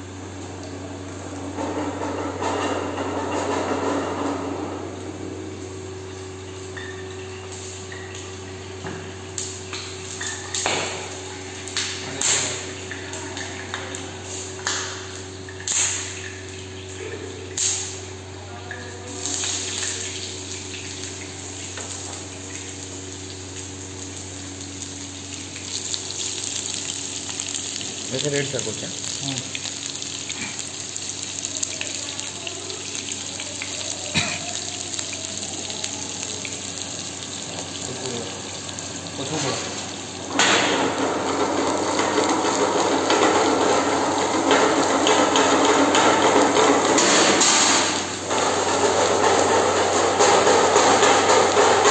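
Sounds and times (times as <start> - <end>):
gas burner humming: 0.0 - 51.9
hot oil popping and sizzling: 0.0 - 51.9.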